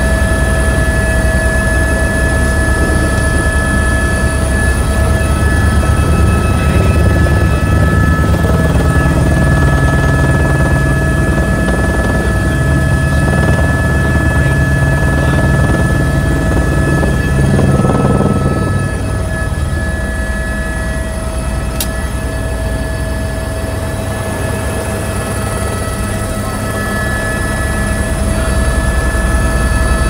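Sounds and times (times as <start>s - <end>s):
helicopter turbine whine: 0.0s - 30.0s
sharp click: 21.7s - 22.0s.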